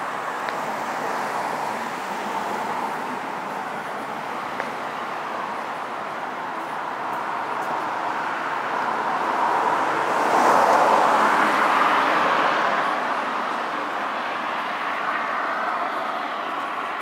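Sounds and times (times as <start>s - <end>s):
car passing: 6.4s - 17.0s.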